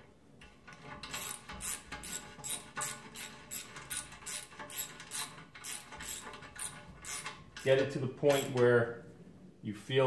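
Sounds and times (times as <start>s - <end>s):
ratchet wrench clicking: 8.3s - 8.6s.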